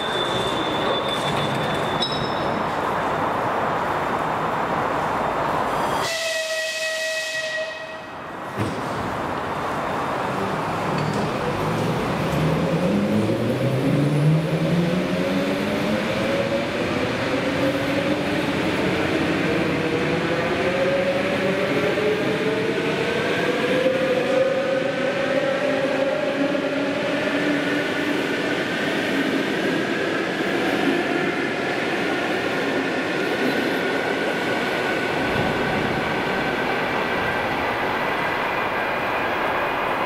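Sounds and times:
train whistle blast: 0:06.0 - 0:08.2.

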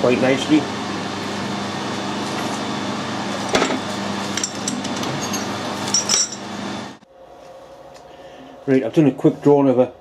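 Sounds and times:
steady mechanical hum: 0:00.0 - 0:10.0
metal ring clinking: 0:04.4 - 0:06.4.

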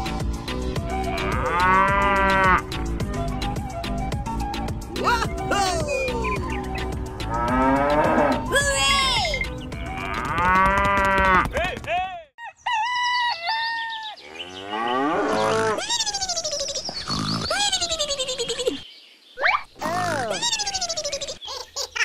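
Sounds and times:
cow mooing: 0:07.2 - 0:08.5.

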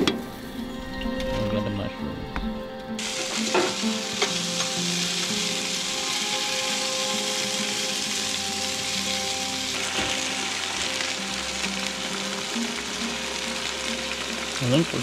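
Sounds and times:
food sizzling in a frying pan: 0:03.0 - 0:15.0.

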